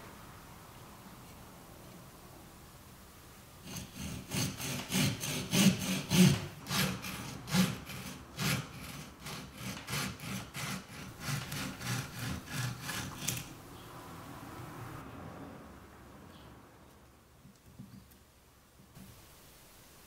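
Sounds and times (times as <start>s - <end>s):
pruning saw rasping through wood: 3.6s - 13.6s.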